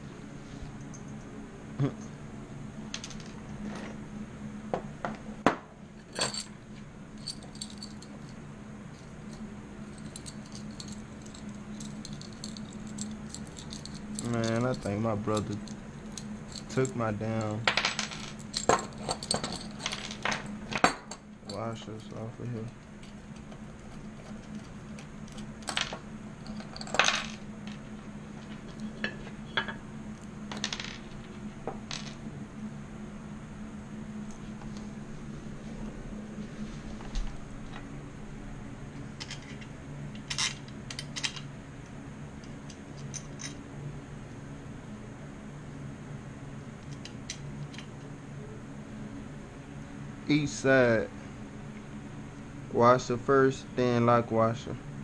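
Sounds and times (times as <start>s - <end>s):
steady low hum: 0.0s - 55.0s
metal bolts clinking and rattling: 6.0s - 6.6s, 7.2s - 8.4s, 9.0s - 27.8s, 39.2s - 41.5s, 42.4s - 43.6s.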